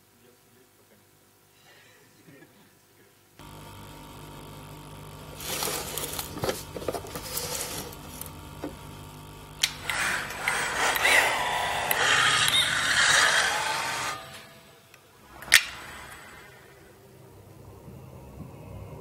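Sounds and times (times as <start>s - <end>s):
crackles and clicks: 3.4s - 11.2s
low hum: 3.4s - 19.0s.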